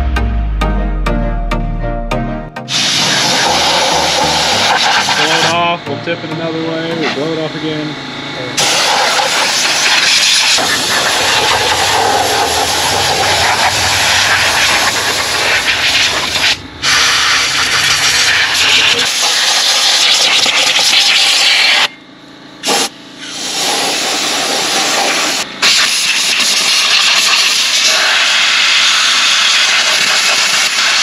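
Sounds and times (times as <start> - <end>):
compressed air blow gun hissing: 2.7 - 5.5, 8.6 - 21.9, 22.6 - 31.0.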